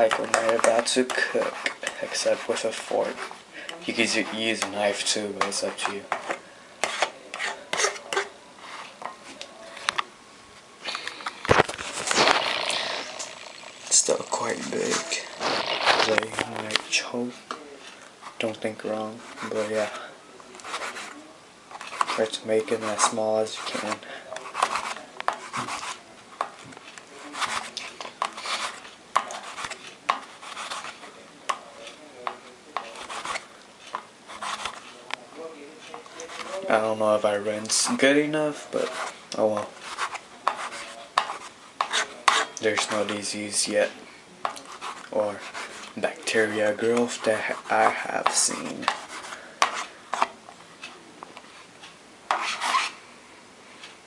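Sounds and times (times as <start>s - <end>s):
plastic fork scraping a plate: 0.0s - 3.4s, 5.4s - 9.0s, 11.2s - 16.9s, 26.8s - 31.0s, 32.2s - 35.0s, 38.8s - 43.1s, 44.5s - 50.3s, 51.8s - 53.0s.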